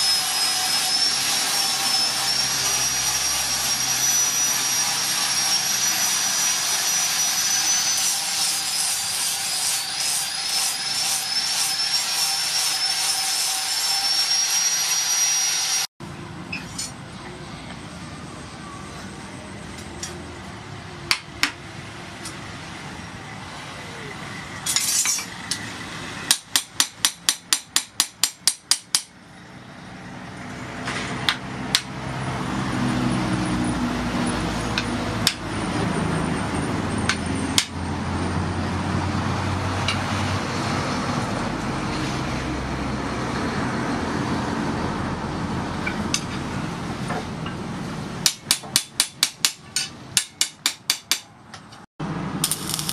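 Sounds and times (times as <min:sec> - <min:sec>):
machine drone: 0:00.0 - 0:09.2, 0:52.0 - 0:52.9
hammer striking steel on anvil: 0:26.3 - 0:29.2, 0:34.8 - 0:35.5, 0:48.2 - 0:51.8.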